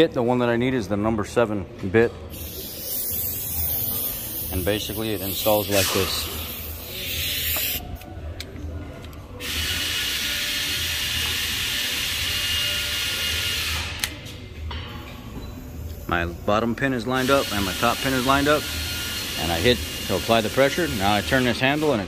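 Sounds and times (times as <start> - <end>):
compressed air hissing: 2.3 - 8.1.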